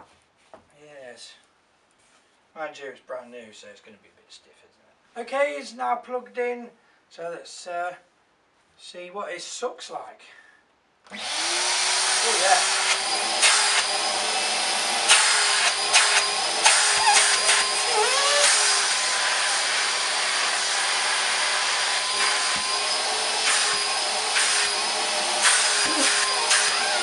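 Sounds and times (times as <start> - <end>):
vacuum cleaner running: 11.1 - 27.0.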